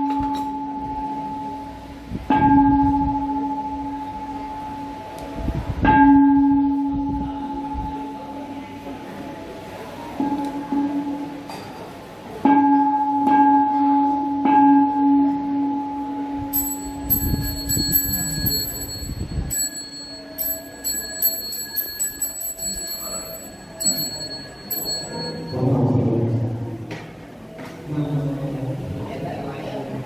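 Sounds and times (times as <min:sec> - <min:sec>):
low-toned bell ringing: 0:12.6 - 0:26.6
small high-pitched bell rung rapidly: 0:16.5 - 0:25.8.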